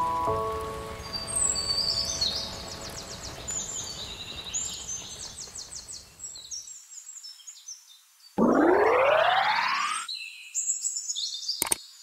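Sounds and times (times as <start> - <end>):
small birds chirping: 0.2 - 8.4.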